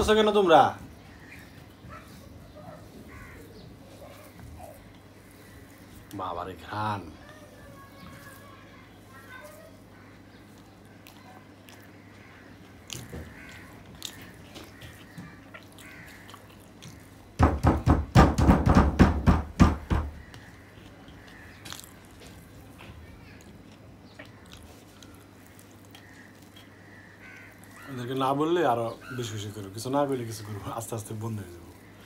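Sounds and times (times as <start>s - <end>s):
fingers mixing rice on steel plate: 2.8s - 17.4s, 20.2s - 32.0s
rapid loud knocks: 17.4s - 20.3s.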